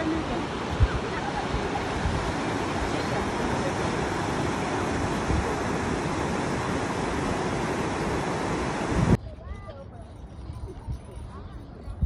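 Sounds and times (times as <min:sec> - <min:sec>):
river rushing over rapids: 0:00.0 - 0:09.2.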